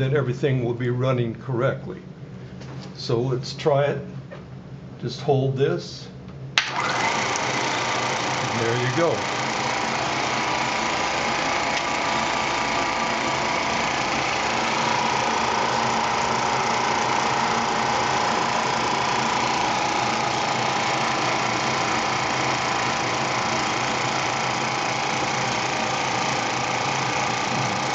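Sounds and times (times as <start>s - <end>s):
film projector whirring: 6.6s - 27.9s.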